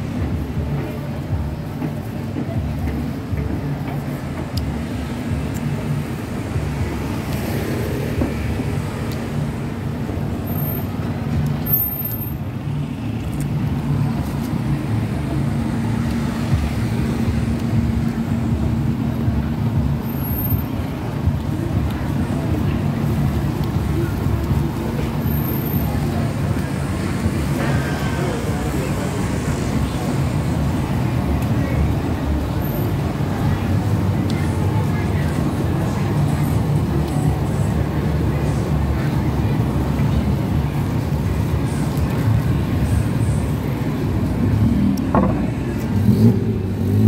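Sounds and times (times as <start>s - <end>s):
road traffic: 0.0s - 47.0s
indistinct voices: 12.4s - 47.0s.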